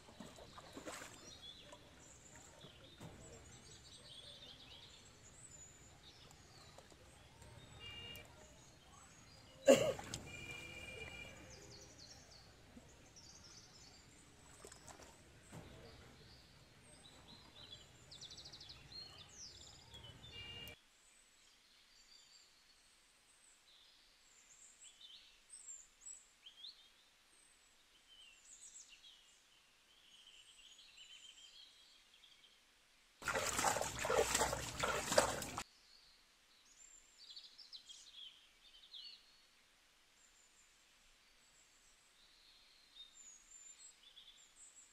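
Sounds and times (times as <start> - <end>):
small birds chirping: 0.0 - 20.8, 33.2 - 39.4
hands digging in mud: 33.2 - 35.6.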